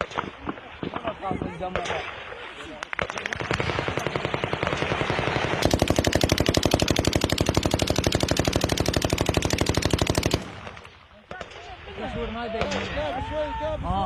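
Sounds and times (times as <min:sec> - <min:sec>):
automatic gunfire: 0:02.9 - 0:11.6.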